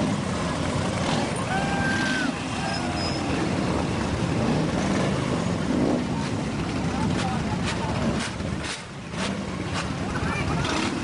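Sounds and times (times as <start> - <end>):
motorcycle engines rumbling: 0.0 - 11.0
crowd calling out: 1.3 - 3.4.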